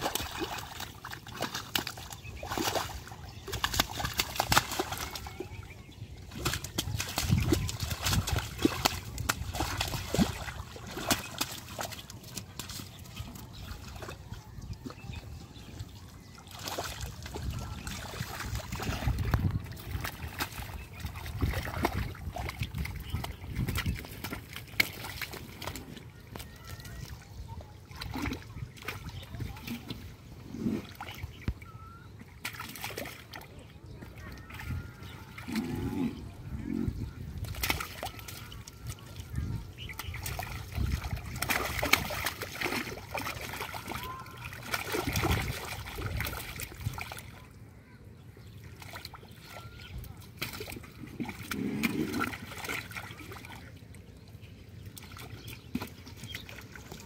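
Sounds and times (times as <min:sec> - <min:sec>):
hands splashing in mud: 0:00.0 - 0:05.4, 0:06.2 - 0:14.0, 0:39.9 - 0:47.1
hands squelching through mud: 0:00.0 - 0:31.7, 0:36.7 - 0:47.6, 0:48.6 - 0:54.1
water splashes and slaps: 0:00.0 - 0:35.8, 0:36.9 - 0:47.6, 0:48.4 - 0:57.0.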